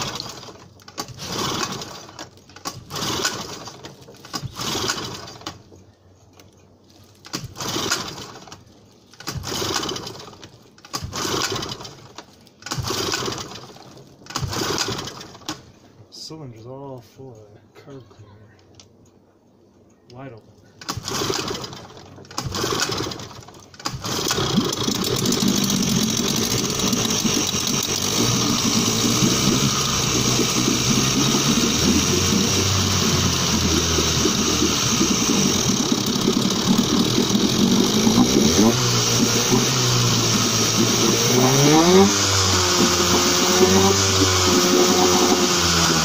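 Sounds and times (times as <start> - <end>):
engine revving: 0.0 - 2.2, 22.4 - 46.0
outboard motor starting and running: 0.0 - 5.8, 7.2 - 15.7, 20.8 - 46.0.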